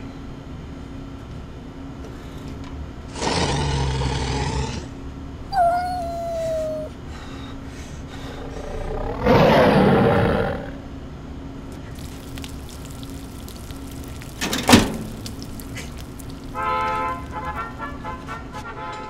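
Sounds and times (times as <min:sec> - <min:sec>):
animal roar: 0:03.1 - 0:04.9, 0:05.5 - 0:06.9, 0:08.2 - 0:10.8, 0:12.0 - 0:14.5.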